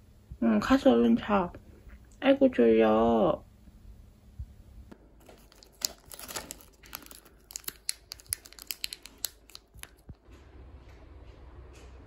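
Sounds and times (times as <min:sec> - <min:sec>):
plastic wrapper crinkling: 0:05.0 - 0:10.2.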